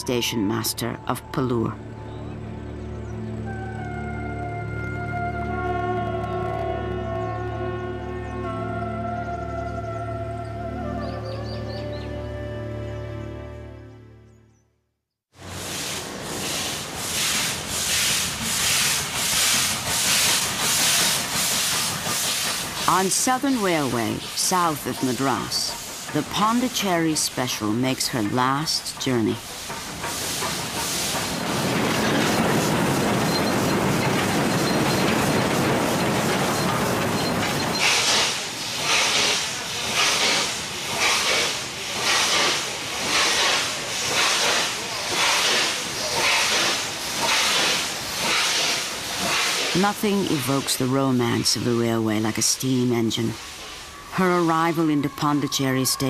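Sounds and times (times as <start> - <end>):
steam hissing: 15.4 - 56.0
steam locomotive chuffing: 15.4 - 56.0.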